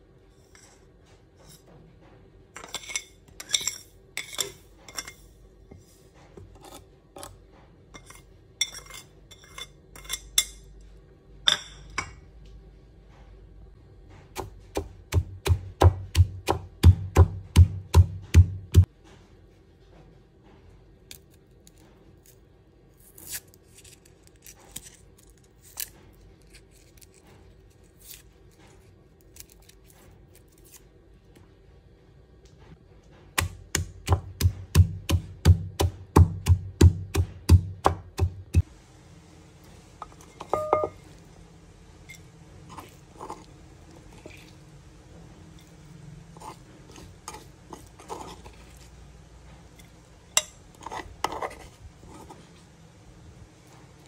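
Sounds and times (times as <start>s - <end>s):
pestle pounding in wooden mortar: 14.4s - 18.9s, 33.4s - 38.6s.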